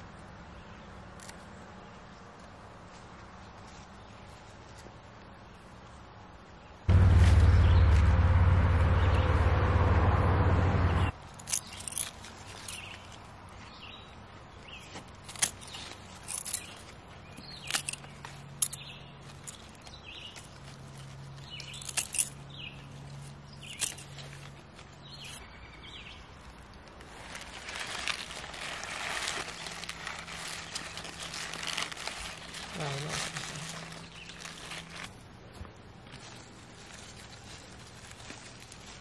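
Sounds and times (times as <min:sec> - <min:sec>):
loud low rushing noise: 0:06.9 - 0:11.1
small birds chirping: 0:10.8 - 0:38.6.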